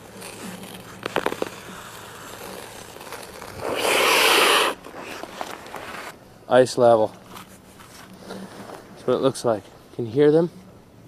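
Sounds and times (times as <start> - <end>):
lake ice cracking: 0.0 - 5.7
skate scraping on ice: 0.0 - 6.2.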